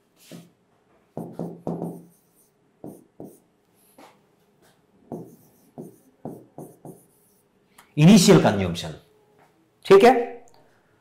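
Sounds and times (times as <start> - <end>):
marker pen writing on whiteboard: 0.2 - 7.6.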